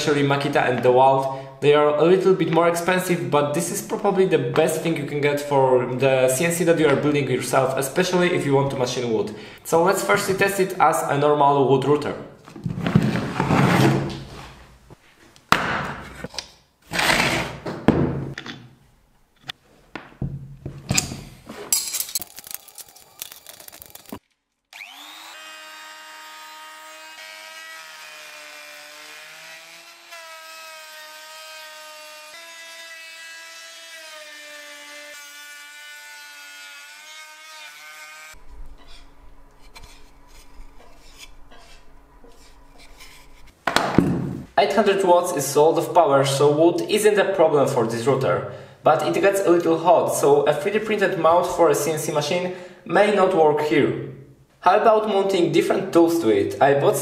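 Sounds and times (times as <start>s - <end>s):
wood router whining: 23.0s - 42.5s
low hum: 38.4s - 43.5s.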